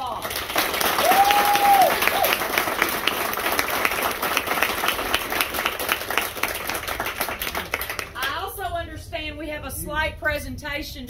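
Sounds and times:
group of people applauding: 0:00.0 - 0:08.4.

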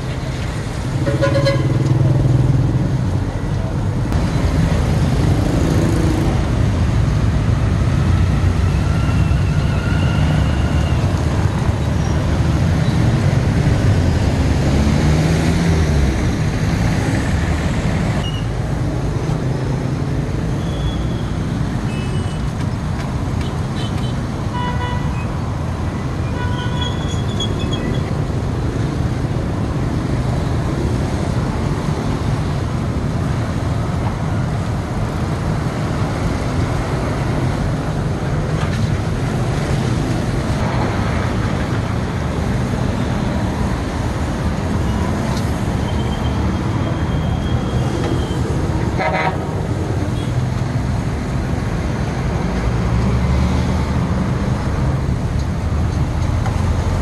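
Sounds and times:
street traffic noise: 0:00.0 - 0:57.0.

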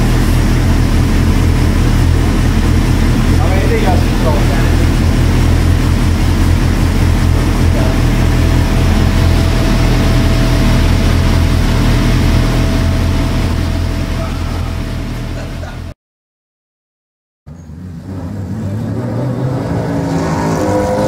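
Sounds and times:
motorcycle engine idling: 0:00.0 - 0:15.9.

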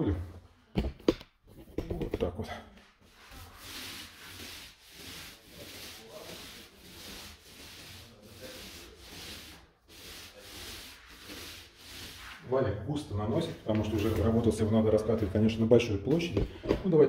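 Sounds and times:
paint roller rubbing on wall: 0:02.8 - 0:16.3.

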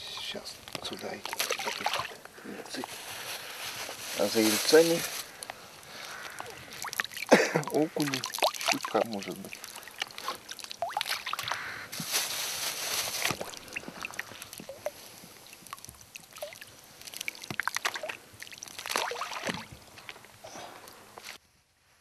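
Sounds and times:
water splashing and sloshing: 0:00.0 - 0:21.3
small water drips: 0:00.1 - 0:02.9, 0:05.3 - 0:11.8, 0:13.2 - 0:21.3.

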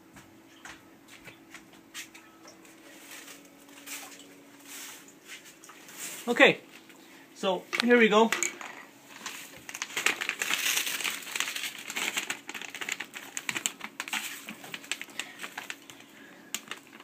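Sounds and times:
plastic bag crinkling: 0:09.0 - 0:17.0.

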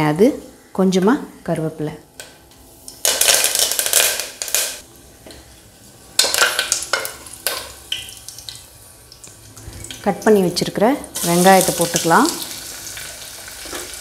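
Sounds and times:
leaves sizzling in hot oil: 0:02.8 - 0:04.9, 0:05.5 - 0:14.0.

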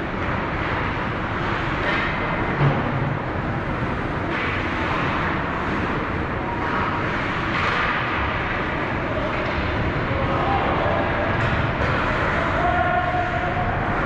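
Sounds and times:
ice rink noise rush: 0:00.0 - 0:14.0.

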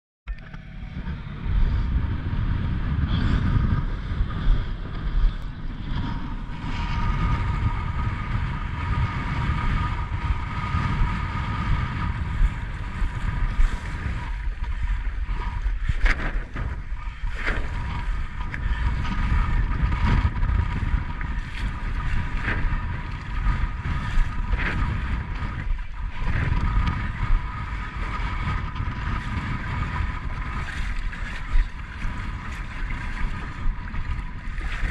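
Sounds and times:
wind rumbling on microphone: 0:00.3 - 0:34.9
water splashing: 0:11.8 - 0:34.9.

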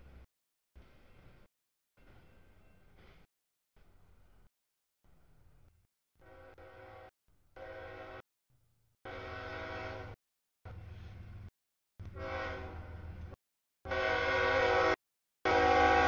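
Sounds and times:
locomotive air horn blasts: 0:06.2 - 0:08.2, 0:09.0 - 0:10.2, 0:12.1 - 0:13.0, 0:13.9 - 0:16.0.

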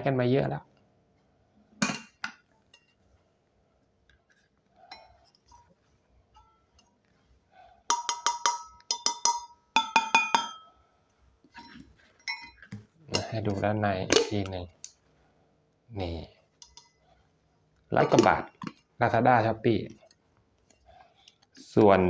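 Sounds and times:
faint handling sounds: 0:02.4 - 0:07.9, 0:10.9 - 0:19.0, 0:19.8 - 0:22.0
metal tumbler tapped ringing: 0:07.9 - 0:10.7.

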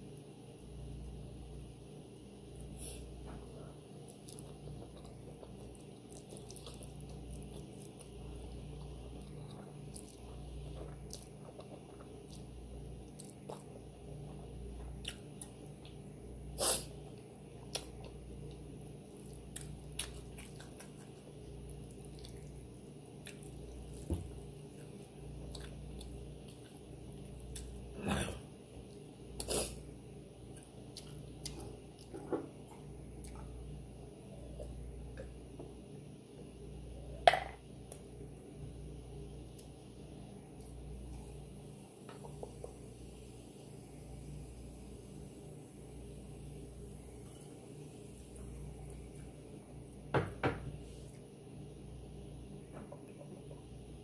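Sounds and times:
close chewing with mouth clicks: 0:04.0 - 0:16.0, 0:17.0 - 0:27.9, 0:30.5 - 0:32.1.

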